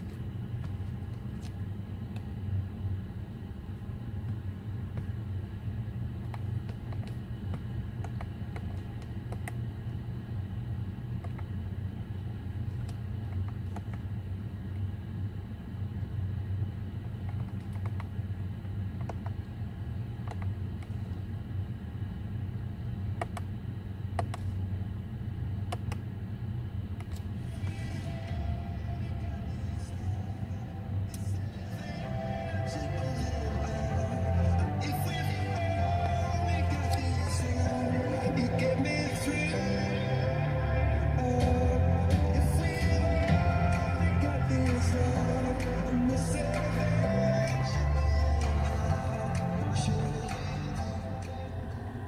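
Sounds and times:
low car cabin rumble: 0.0s - 52.0s
music through car speakers: 27.1s - 52.0s.

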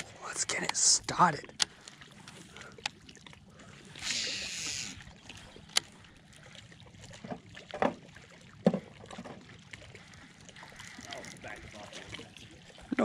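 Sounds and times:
reel click: 1.5s - 3.0s, 4.0s - 5.0s, 5.7s - 5.9s
fishing line whirring off reel: 4.0s - 5.1s.

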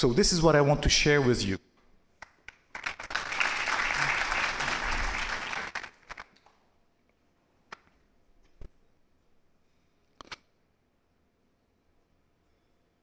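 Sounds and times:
audience applauding: 2.2s - 6.6s.

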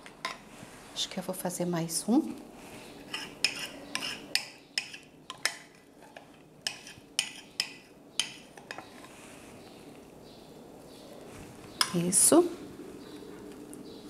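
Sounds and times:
metal spoon scraping glass dish: 3.1s - 5.1s.

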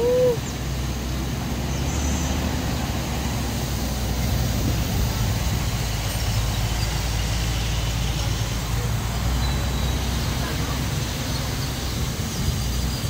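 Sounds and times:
wind buffeting microphone: 4.0s - 6.6s.

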